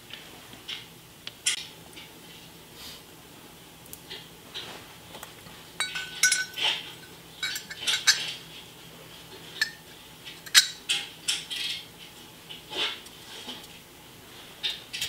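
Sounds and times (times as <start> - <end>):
metal parts clinking: 5.8 - 8.4, 10.4 - 10.9.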